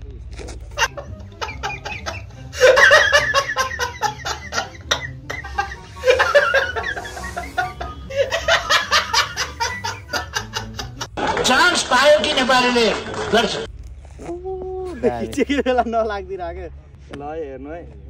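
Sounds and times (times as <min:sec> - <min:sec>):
man laughing hard: 0:00.8 - 0:11.1
background music with even beat: 0:00.9 - 0:11.1.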